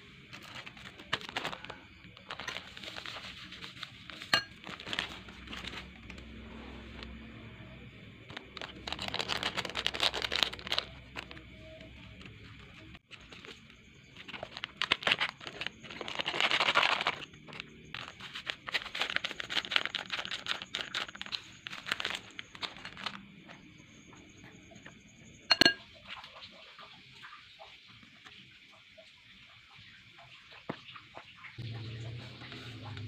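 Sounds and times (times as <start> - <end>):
plastic packets crinkling: 0.3 - 7.1, 8.2 - 12.4, 14.2 - 23.3
utensil tapping glass bowl: 25.5 - 25.8.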